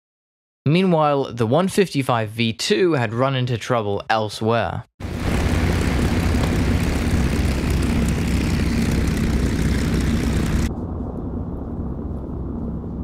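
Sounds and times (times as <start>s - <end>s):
propeller plane engine drone: 5.0s - 13.0s.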